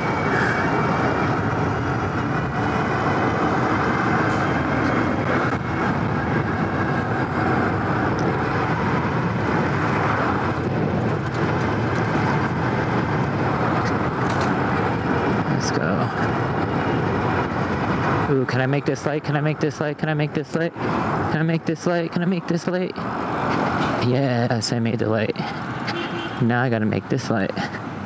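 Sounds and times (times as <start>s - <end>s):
wind rush: 0.0s - 26.4s
passing traffic: 0.0s - 28.0s
road noise: 0.0s - 28.0s.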